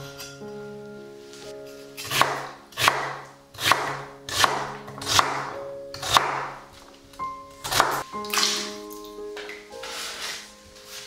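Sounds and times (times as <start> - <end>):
soft background music: 0.0 - 11.0
knife chopping on wooden board: 2.0 - 6.5, 7.6 - 8.6.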